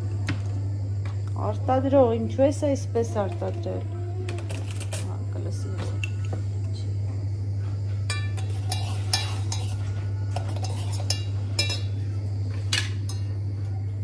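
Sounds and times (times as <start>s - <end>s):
steady low hum: 0.0s - 14.0s
spoon clinking against cups: 8.1s - 12.0s, 12.7s - 13.4s.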